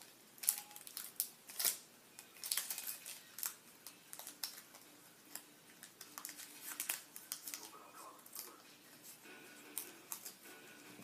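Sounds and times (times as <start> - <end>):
scissors snipping foil: 0.0 - 8.6
foil wrapper crinkling: 0.0 - 9.1.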